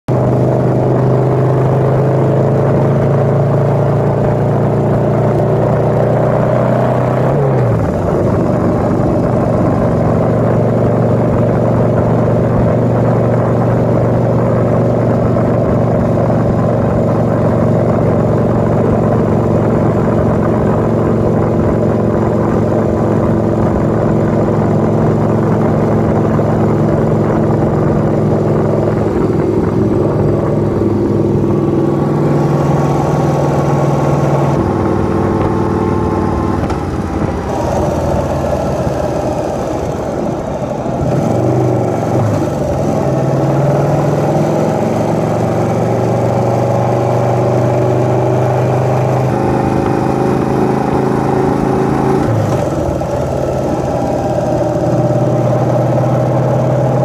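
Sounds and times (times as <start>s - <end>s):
wind rumbling on microphone: 0.1s - 44.0s
motorcycle engine running: 0.1s - 57.0s.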